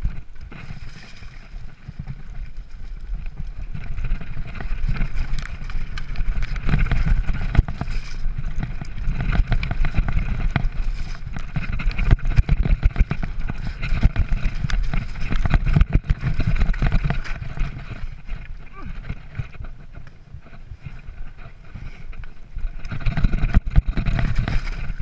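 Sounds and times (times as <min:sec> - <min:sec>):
bike rattling and knocking: 0:00.0 - 0:25.0
tyres rumbling over stones: 0:00.0 - 0:25.0.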